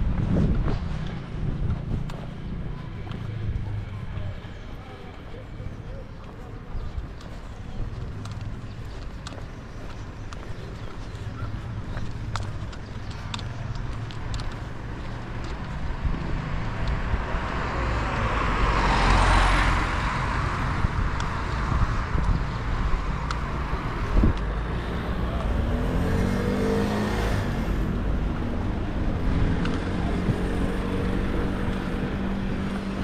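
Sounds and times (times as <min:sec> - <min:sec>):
traffic engine and road noise: 0:00.0 - 0:33.0.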